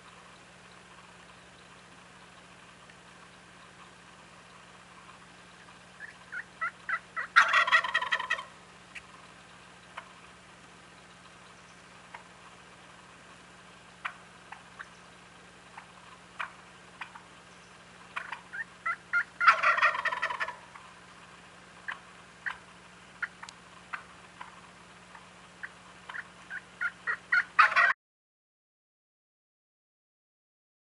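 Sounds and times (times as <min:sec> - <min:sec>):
turkeys clucking and yelping: 0:00.0 - 0:28.0
turkey gobble: 0:03.6 - 0:10.3, 0:11.5 - 0:13.0, 0:14.0 - 0:21.2, 0:21.8 - 0:28.0.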